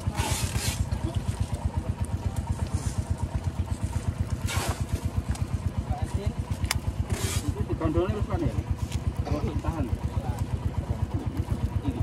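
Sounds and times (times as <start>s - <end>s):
small engine idling: 0.0s - 12.0s.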